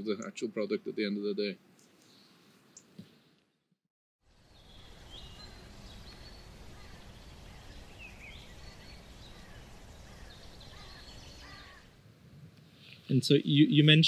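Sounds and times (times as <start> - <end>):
bird chirps: 4.5 - 11.9.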